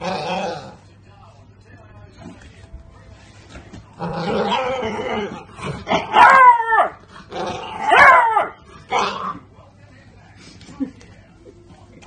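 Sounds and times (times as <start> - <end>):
puppy baying and howling: 4.2 - 9.4.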